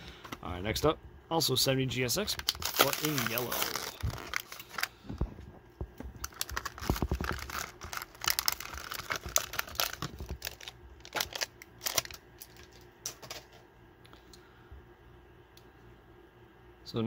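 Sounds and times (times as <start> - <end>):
plastic packaging crinkling: 2.2 - 5.0, 6.2 - 13.4.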